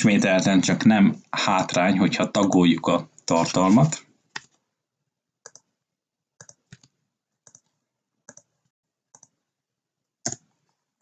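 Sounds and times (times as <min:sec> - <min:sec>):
computer keyboard keystrokes: 0:05.4 - 0:05.7, 0:06.4 - 0:07.7, 0:08.3 - 0:08.5, 0:09.1 - 0:09.4, 0:10.2 - 0:10.5.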